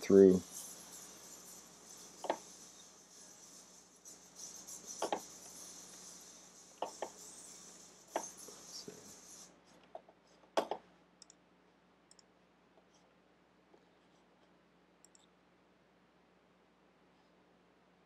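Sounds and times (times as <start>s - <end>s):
faint high hiss: 0.0s - 9.7s
computer mouse clicks: 10.6s - 11.4s, 12.1s - 12.9s, 15.0s - 15.3s.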